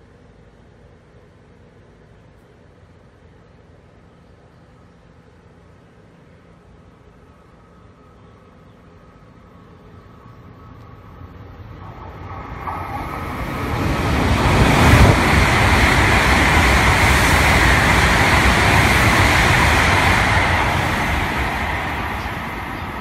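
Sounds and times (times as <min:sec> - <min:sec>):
high-speed train rushing past: 0:09.0 - 0:23.0.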